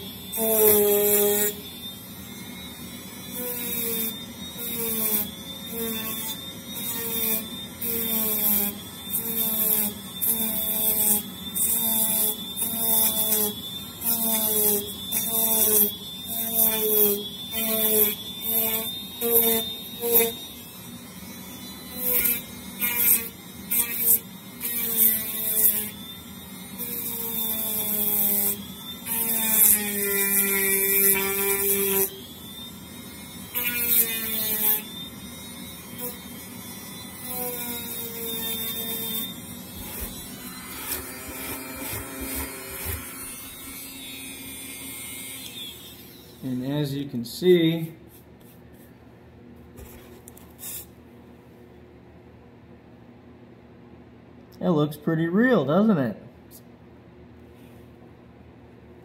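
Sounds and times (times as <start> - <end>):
rotary tool whining: 0.0 - 47.3
scraping hiss of carving foam: 50.5 - 51.0.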